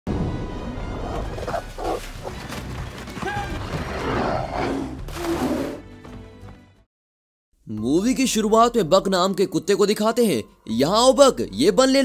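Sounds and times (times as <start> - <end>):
film music: 0.1 - 6.9
splashing through water: 1.3 - 3.2
bear roaring: 3.5 - 5.8.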